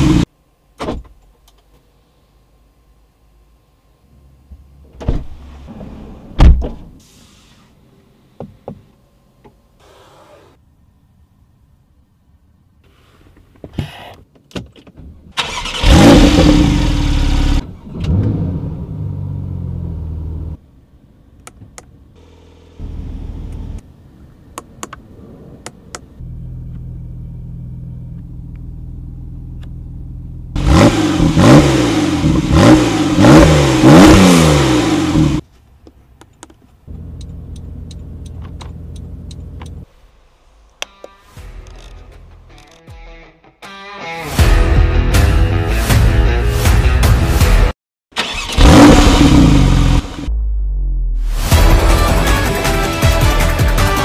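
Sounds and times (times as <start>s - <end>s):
car engine starting and revving: 15.4s - 20.6s, 26.2s - 35.4s, 48.2s - 52.5s.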